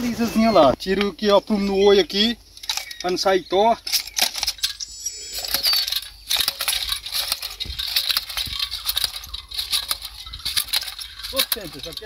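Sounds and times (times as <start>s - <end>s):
seed planter rattling and clicking: 2.2s - 12.0s
kernels clinking: 2.6s - 12.0s.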